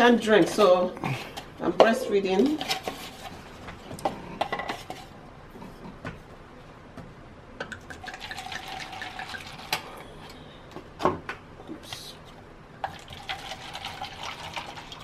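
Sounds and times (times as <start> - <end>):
wine pouring into cup: 7.9 - 9.9, 12.8 - 15.0.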